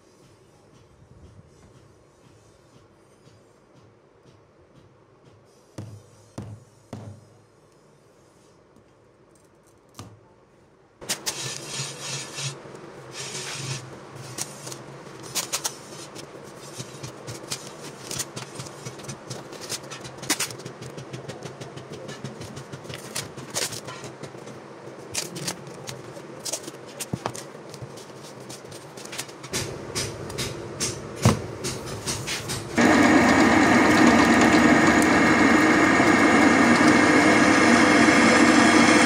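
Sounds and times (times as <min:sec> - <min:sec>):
sharp clicks and knocks: 0:16.8 - 0:24.6
power tool motor running: 0:32.8 - 0:39.0.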